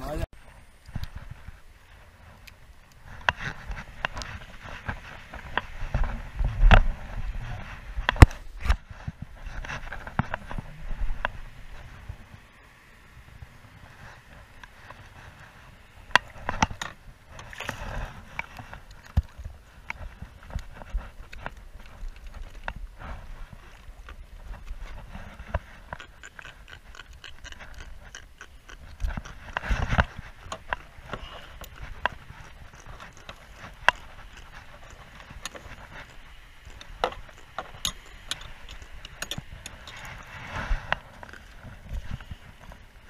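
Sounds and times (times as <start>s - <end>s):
low rumble: 5.7s - 13.8s.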